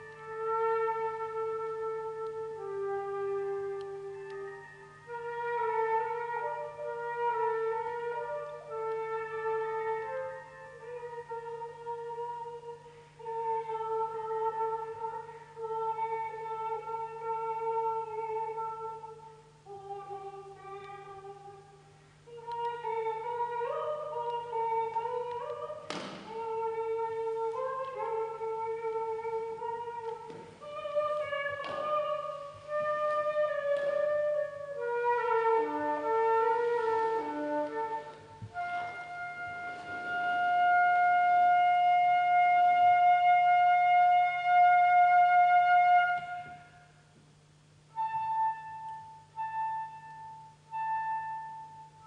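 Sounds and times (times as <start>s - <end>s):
flute playing slow solo: 0.0s - 47.2s, 47.9s - 52.0s
low electronic hum: 0.0s - 52.0s
sharp knock: 25.9s - 26.4s.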